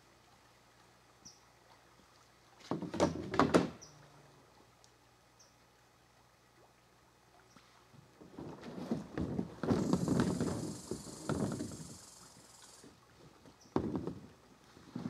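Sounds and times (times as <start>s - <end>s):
loud knocks and rustling: 2.7s - 3.8s, 8.2s - 12.0s, 13.7s - 14.3s.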